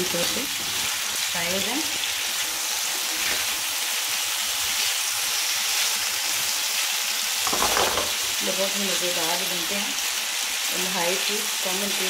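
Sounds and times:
potatoes sizzling in oil: 0:00.0 - 0:12.0
spatula clattering on pan: 0:07.4 - 0:08.3.

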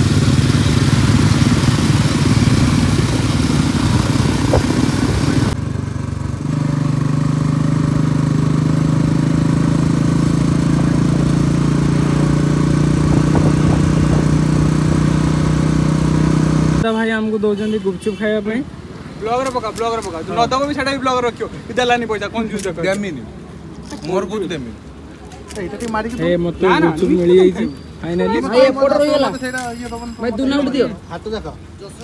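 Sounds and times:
motorcycle engine: 0:00.0 - 0:16.9
wind rushing noise: 0:01.0 - 0:05.6, 0:12.8 - 0:15.5.

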